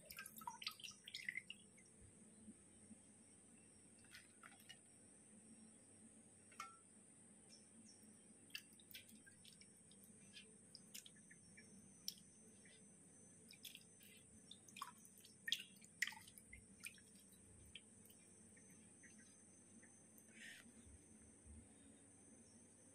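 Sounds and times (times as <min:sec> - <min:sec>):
water dripping into metal sink: 0:00.0 - 0:01.6, 0:10.7 - 0:12.3, 0:13.5 - 0:18.2.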